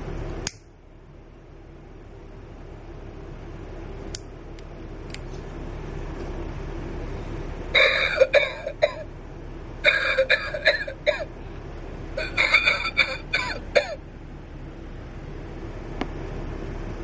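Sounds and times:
recorded coughing: 7.8s - 9.1s, 9.8s - 11.3s, 12.2s - 14.0s.

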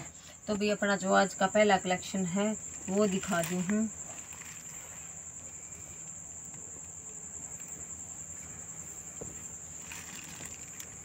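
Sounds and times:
cloth rustling: 2.7s - 5.6s, 8.7s - 11.0s.

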